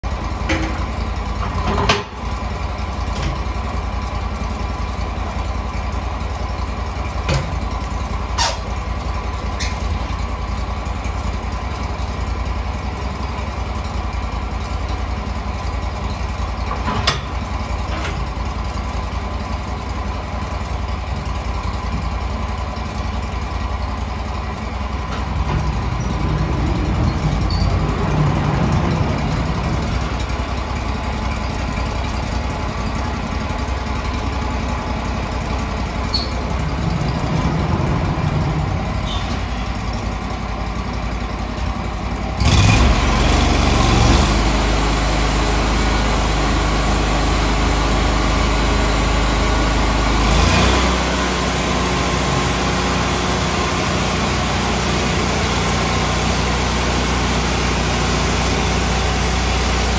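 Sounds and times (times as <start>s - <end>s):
band sawmill drone: 21.8s - 59.9s.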